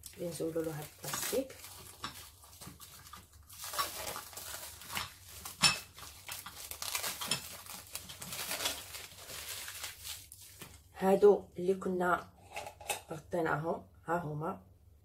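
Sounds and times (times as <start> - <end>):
plastic film crinkling: 0.0 - 10.9.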